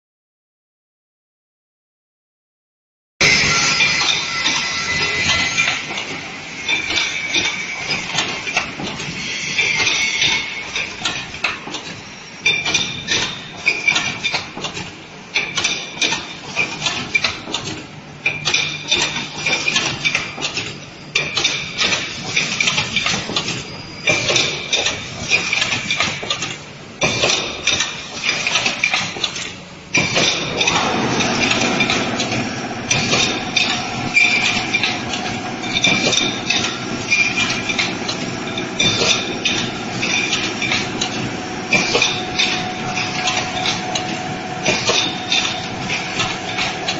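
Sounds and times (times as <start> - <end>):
machine clanking and clattering: 3.2 - 46.9
machine running hum: 29.7 - 46.9.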